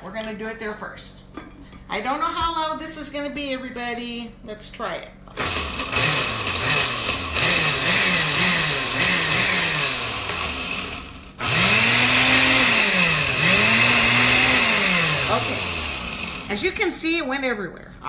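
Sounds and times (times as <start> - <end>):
blender motor running: 5.4 - 16.7.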